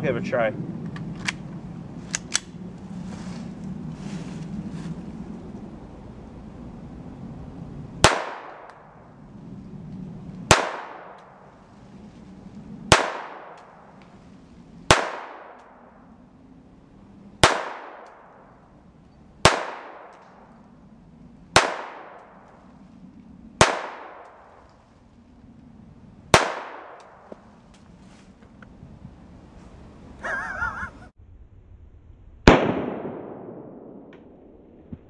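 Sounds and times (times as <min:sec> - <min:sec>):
pistol shots with echo: 0:08.0 - 0:08.7, 0:10.5 - 0:11.2, 0:12.9 - 0:13.6, 0:14.9 - 0:15.6, 0:17.4 - 0:18.1, 0:19.4 - 0:20.1, 0:21.6 - 0:22.2, 0:23.6 - 0:24.3, 0:26.3 - 0:27.1.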